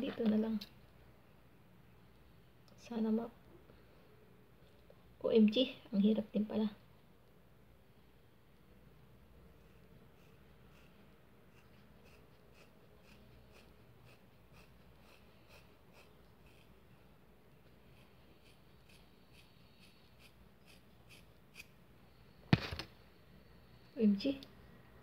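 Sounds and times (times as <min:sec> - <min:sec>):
sharp knock: 0:22.5 - 0:22.9.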